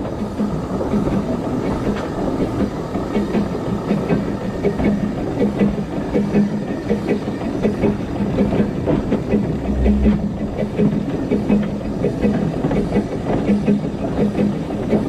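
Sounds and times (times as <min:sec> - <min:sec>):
steam locomotive rhythmic beat: 0:00.0 - 0:15.0
low rumble: 0:09.2 - 0:11.4.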